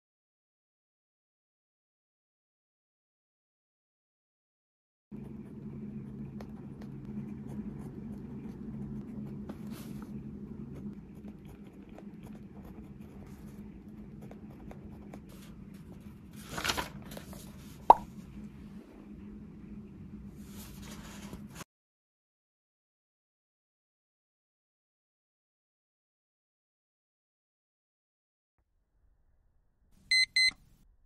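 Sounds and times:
low steady hum: 5.2 - 21.6.

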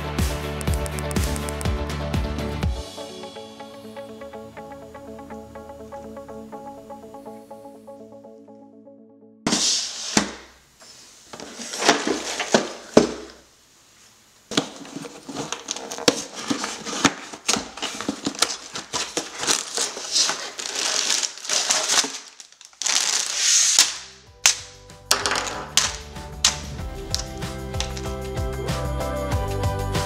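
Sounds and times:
cardboard rustling: 11.2 - 13.4, 14.5 - 28.1
plastic bags crinkling: 11.4 - 13.4, 14.5 - 28.1
small plastic bricks clicking: 19.6 - 28.1.

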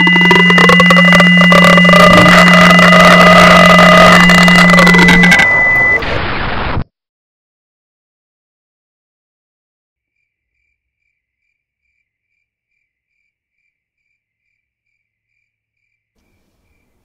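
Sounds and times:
cricket chirping: 10.0 - 17.0.

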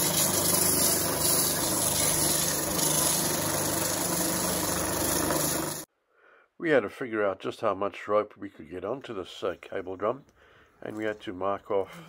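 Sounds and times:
sandpaper rubbing on wood: 0.0 - 5.8
drill press motor hum: 0.0 - 5.9.

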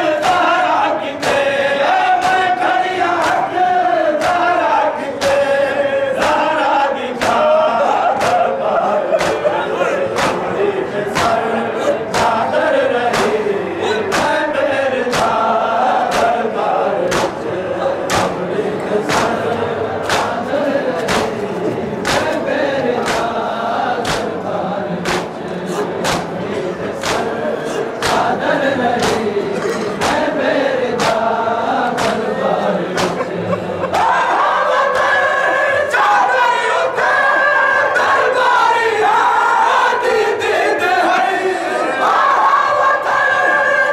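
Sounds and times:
men chanting in unison: 0.0 - 43.9
hands beating on chests: 17.1 - 17.4, 24.0 - 24.4, 26.0 - 26.4, 27.0 - 27.3
hands striking chests: 26.0 - 26.4.

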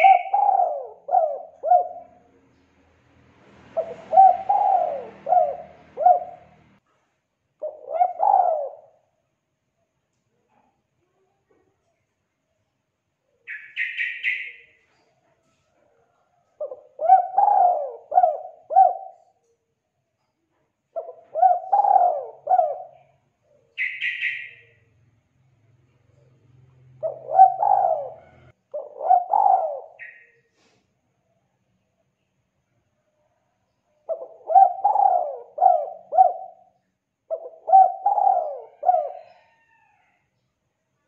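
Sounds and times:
dove cooing: 0.0 - 2.3, 3.6 - 6.8, 7.6 - 9.1, 16.6 - 19.4, 20.9 - 24.6, 26.9 - 30.3, 34.1 - 39.8
high chirping trills: 23.8 - 24.8.

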